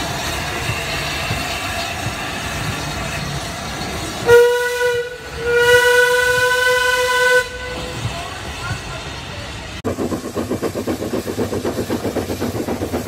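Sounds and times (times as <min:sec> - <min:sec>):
passing train running noise: 0:00.0 - 0:13.0
steam locomotive whistle blasts: 0:04.2 - 0:08.0.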